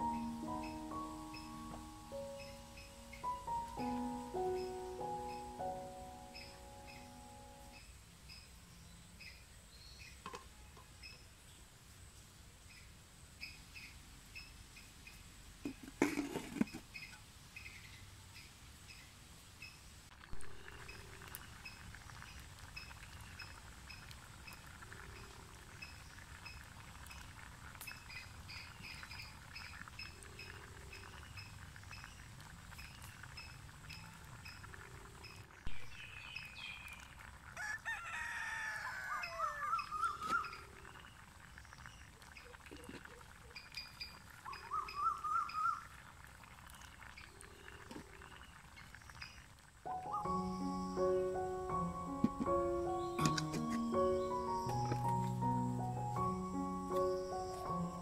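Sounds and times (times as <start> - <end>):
rooster crowing: 37.6 - 40.0
faint high chirps: 49.9 - 51.5.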